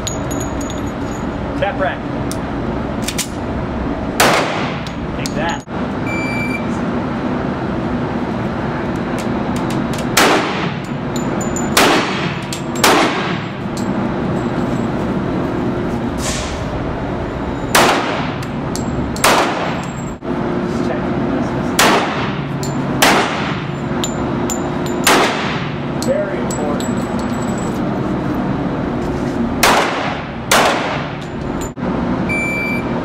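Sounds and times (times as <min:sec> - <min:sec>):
handgun shots echoing indoors: 0:04.2 - 0:04.8, 0:11.7 - 0:13.4, 0:17.7 - 0:18.4, 0:19.2 - 0:19.8, 0:21.8 - 0:22.4, 0:23.0 - 0:23.7, 0:25.0 - 0:25.7, 0:29.6 - 0:31.2.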